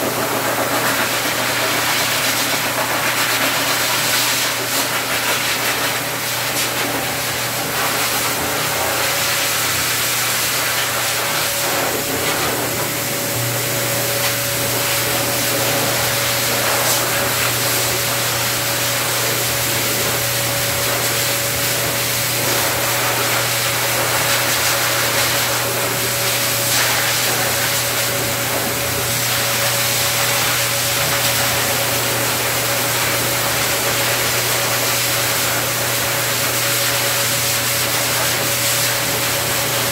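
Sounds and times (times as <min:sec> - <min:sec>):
dryer motor hum and whine: 0:00.0 - 0:39.9
pet dryer blowing air: 0:00.0 - 0:39.9.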